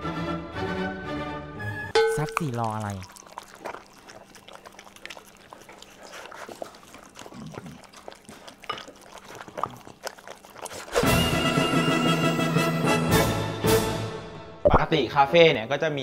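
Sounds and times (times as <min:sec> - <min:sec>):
dogs chewing and lapping: 0:02.0 - 0:13.9.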